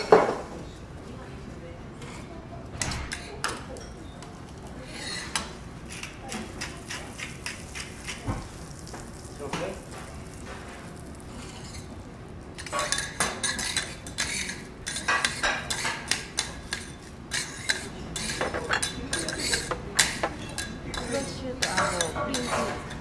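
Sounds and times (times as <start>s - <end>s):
metal spatula scraping griddle: 11.3s - 11.9s, 12.6s - 23.0s.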